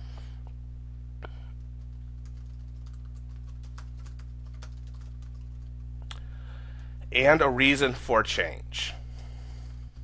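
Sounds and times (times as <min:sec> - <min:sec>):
low electrical hum: 0:00.0 - 0:10.0
keyboard typing: 0:01.8 - 0:05.8.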